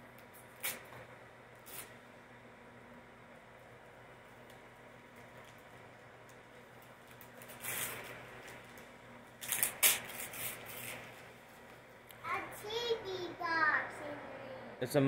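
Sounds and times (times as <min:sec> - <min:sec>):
wrapping paper tearing: 0:00.3 - 0:00.9, 0:01.6 - 0:02.0, 0:07.0 - 0:11.4.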